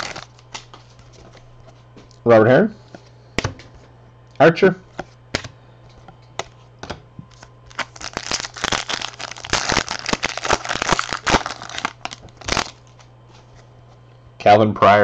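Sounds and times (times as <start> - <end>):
wrapper tearing and crinkling: 0.0 - 0.7, 7.3 - 13.1.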